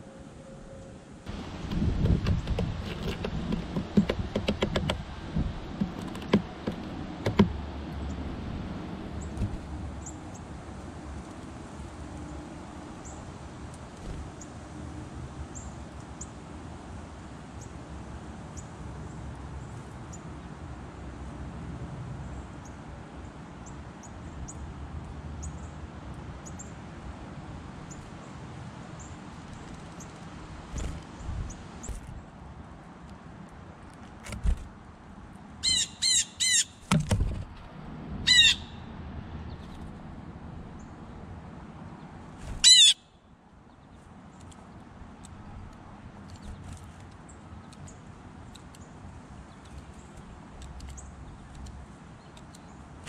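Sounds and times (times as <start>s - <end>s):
sharp clicks and taps: 1.6s - 7.6s
songbirds high call notes: 35.6s - 36.9s, 38.2s - 38.9s, 42.5s - 43.9s.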